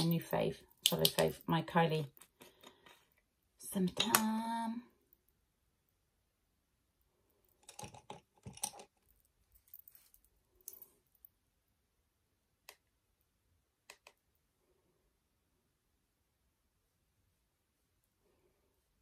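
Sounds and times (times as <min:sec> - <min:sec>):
plastic makeup pot clicks: 0:03.9 - 0:04.4.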